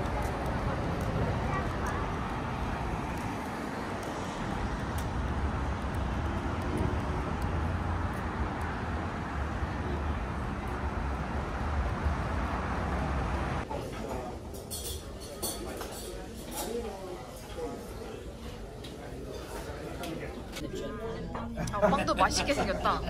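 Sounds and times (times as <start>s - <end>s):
vehicle low rumble: 0.0s - 13.7s
constant noise wash: 0.0s - 19.1s.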